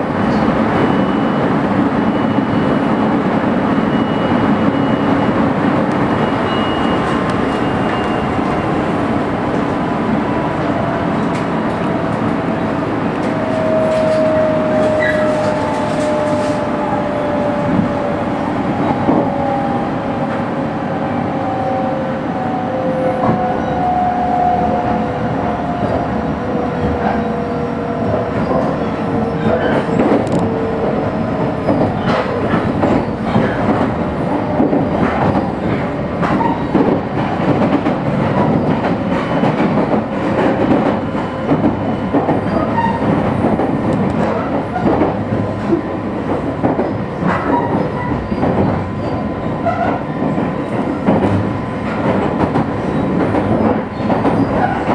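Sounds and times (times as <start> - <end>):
train wheels rumbling on rails: 0.0 - 54.9.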